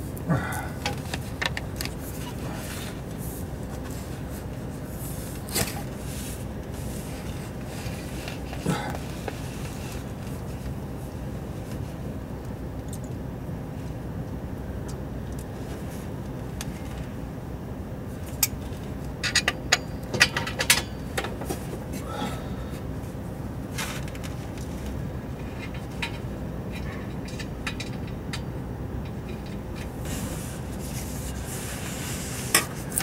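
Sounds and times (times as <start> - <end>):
steady low rumble: 0.0 - 33.0
exhaust pipe metal clinks: 18.4 - 21.7, 25.4 - 30.0.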